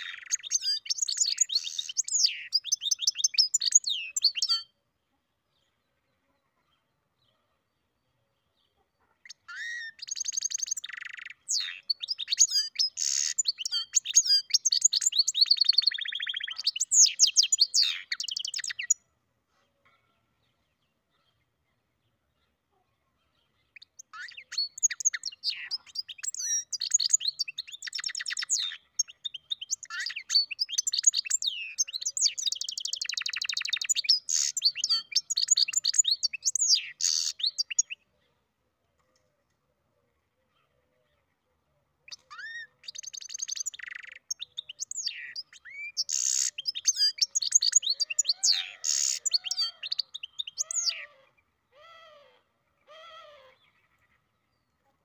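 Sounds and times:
bird twittering and trilling: 0.0 - 4.8, 8.7 - 19.1, 23.3 - 38.1, 42.1 - 54.7.

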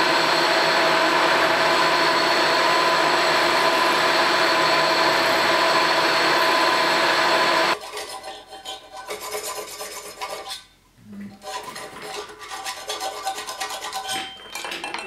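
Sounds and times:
hand file rasping on metal: 7.8 - 10.7, 11.3 - 14.4.

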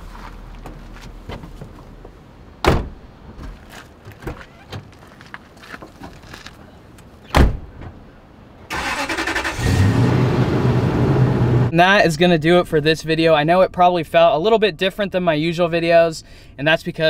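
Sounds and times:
rustling of people climbing in: 0.0 - 2.3, 3.2 - 7.2
truck door slamming: 2.6 - 3.6, 7.3 - 8.0
truck engine starting: 8.7 - 11.7.

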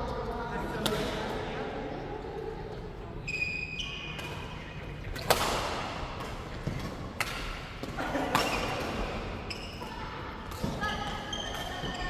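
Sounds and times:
racket hitting shuttlecock: 5.1 - 11.8.

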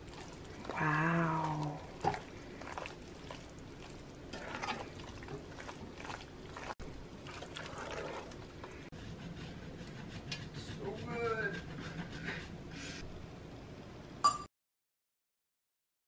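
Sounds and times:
spoon stirring thick pasta: 0.0 - 11.9.

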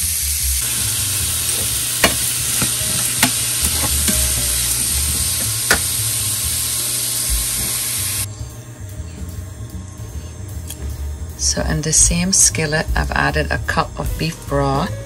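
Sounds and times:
onions sizzling in a skillet: 0.0 - 8.3
spoon knocking against pan: 2.0 - 4.4.

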